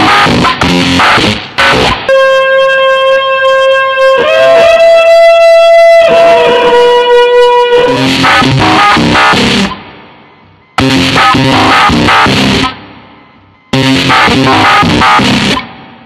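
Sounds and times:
guitar and drums: 0.0 - 16.0.

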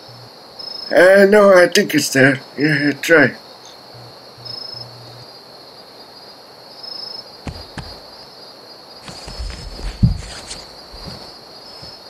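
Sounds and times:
crickets chirping: 0.0 - 12.0
dull thumps: 7.4 - 8.1, 9.0 - 12.0
rustling: 7.4 - 8.1, 9.0 - 12.0.

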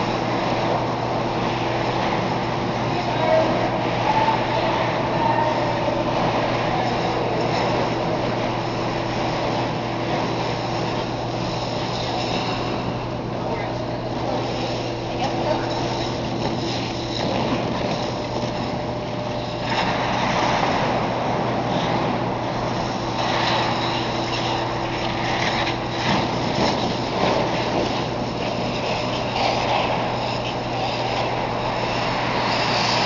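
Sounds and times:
noisy rushing: 0.0 - 33.0
skate blades scraping ice: 13.6 - 18.8, 19.5 - 21.1, 21.7 - 33.0.

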